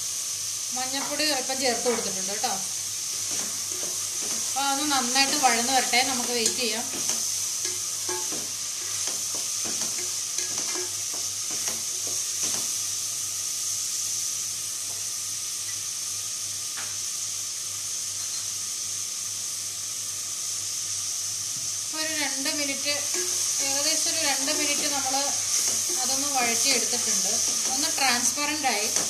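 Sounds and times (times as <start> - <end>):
onions sizzling in oil: 0.0 - 29.0
spatula scraping pot: 23.1 - 29.0.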